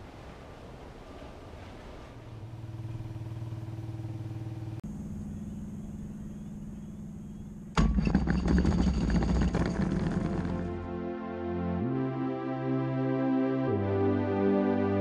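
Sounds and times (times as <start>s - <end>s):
steady engine hum: 0.0s - 12.2s
ultralight engine starting: 2.1s - 10.8s.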